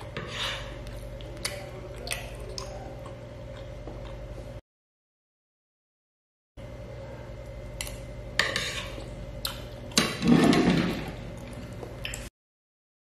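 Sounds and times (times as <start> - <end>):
low steady hum: 0.0 - 4.6, 6.6 - 12.3.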